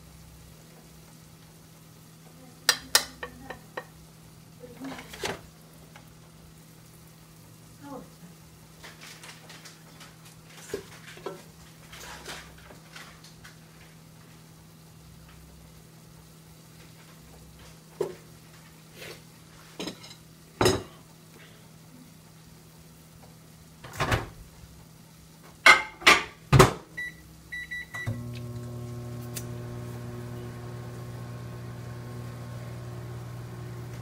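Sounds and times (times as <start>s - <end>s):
kitchen knocks and clatter: 19.8s - 20.9s, 23.8s - 24.4s, 25.6s - 26.8s
microwave oven humming: 22.3s - 34.0s.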